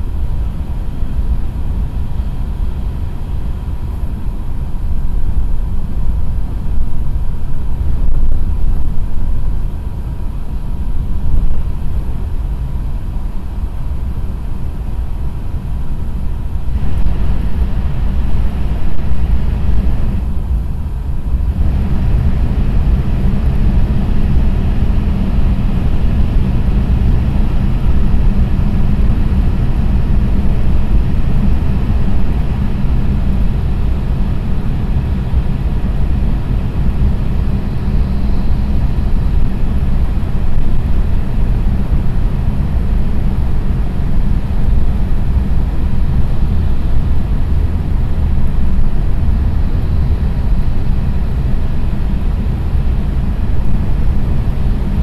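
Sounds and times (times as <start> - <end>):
faint steady whine: 0.0 - 55.0
low train rumble: 0.0 - 55.0
rush of wind: 0.0 - 55.0
rail noise: 15.4 - 55.0.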